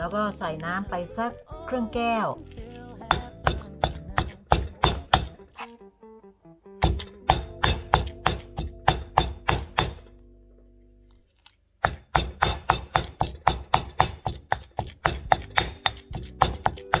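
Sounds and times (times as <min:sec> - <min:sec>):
pestle pounding in stone mortar: 0:03.0 - 0:05.7, 0:06.8 - 0:10.0, 0:11.8 - 0:17.0.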